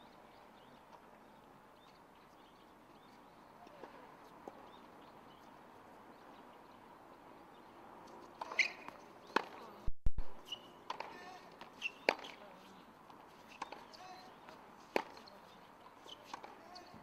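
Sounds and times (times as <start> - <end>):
shoes squeaking on court: 8.0 - 17.0
racket hitting tennis ball: 8.4 - 9.7, 10.9 - 12.4, 14.8 - 15.3, 16.2 - 16.8.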